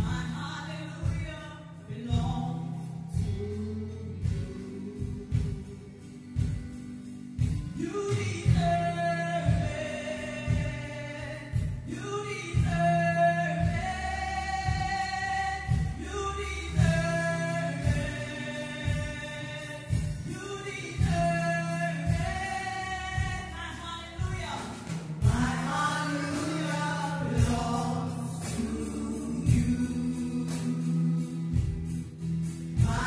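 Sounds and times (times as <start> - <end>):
instrumental backing with bass line: 0.0 - 33.0
gospel voices singing: 7.8 - 33.0.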